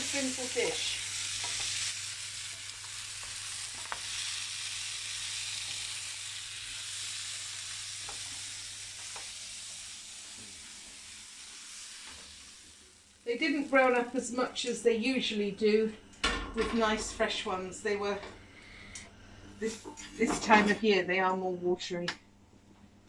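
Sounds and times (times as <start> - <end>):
vegetables sizzling in a frying pan: 0.0 - 14.9.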